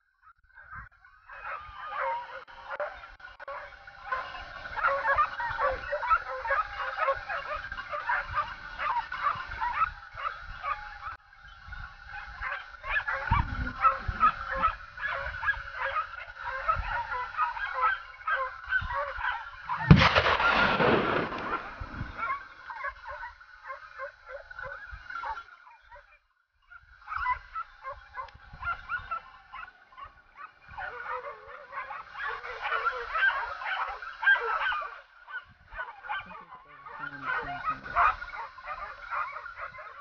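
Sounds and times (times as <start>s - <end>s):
dogs yelping and baying: 0.1s - 40.0s
sudden loud burst of noise: 19.9s - 22.2s.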